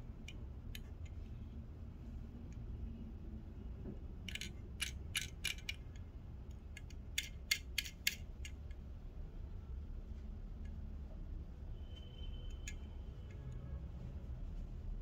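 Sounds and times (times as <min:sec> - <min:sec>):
toy car clicking in fingers: 0:04.2 - 0:06.0, 0:06.7 - 0:08.6.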